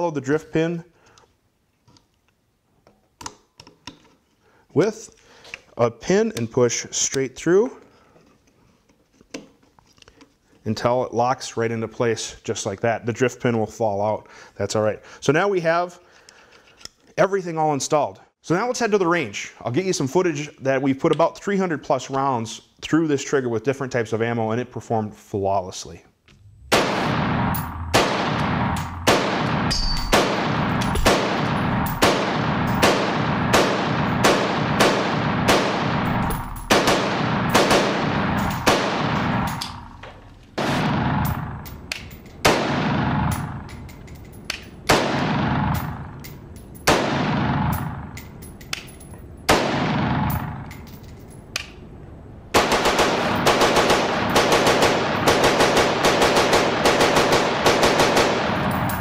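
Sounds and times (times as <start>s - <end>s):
rifle shots echoing indoors: 26.6s - 43.8s, 44.8s - 48.3s, 49.5s - 50.7s, 52.5s - 59.0s.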